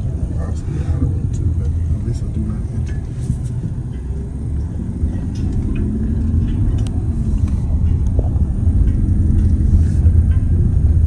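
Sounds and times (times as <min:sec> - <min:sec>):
vehicle engine and road rumble: 0:00.0 - 0:11.0.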